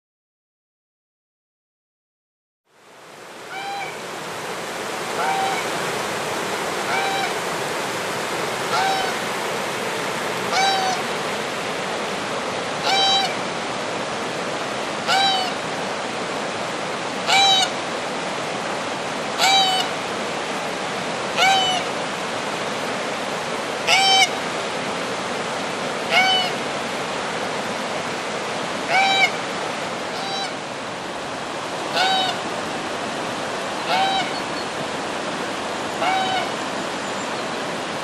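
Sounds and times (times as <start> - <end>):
river rapids rushing: 2.8 - 38.0
goose honking: 3.5 - 3.9, 5.2 - 5.7, 6.9 - 7.4, 8.7 - 9.2, 10.5 - 11.0, 12.8 - 13.4, 19.4 - 19.9, 30.1 - 30.6, 31.9 - 32.4, 33.9 - 34.4, 36.0 - 36.5.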